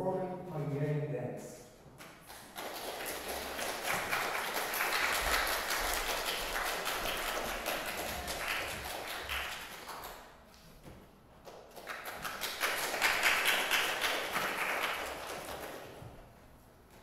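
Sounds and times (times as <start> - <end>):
audience applauding: 2.3 - 10.2, 11.7 - 16.0.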